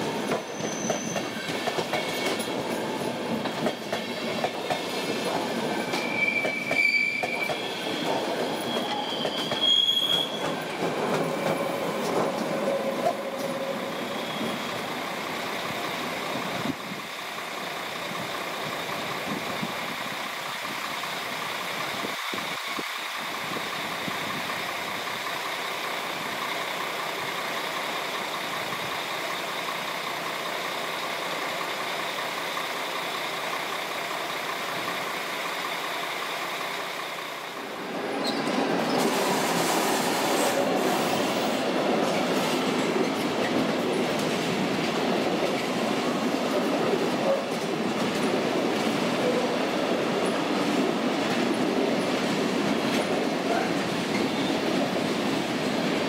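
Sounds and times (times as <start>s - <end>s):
train wheels on rails: 0.0s - 56.0s.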